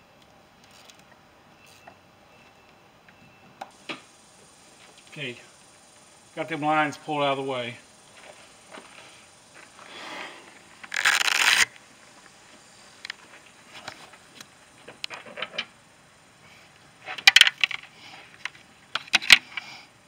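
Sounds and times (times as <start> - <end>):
rustling: 8.1 - 15.7.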